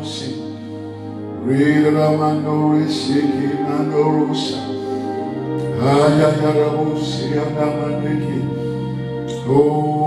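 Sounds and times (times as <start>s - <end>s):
background music: 0.0s - 10.0s
man chanting into a microphone: 1.4s - 4.8s, 5.6s - 8.6s, 9.3s - 10.0s.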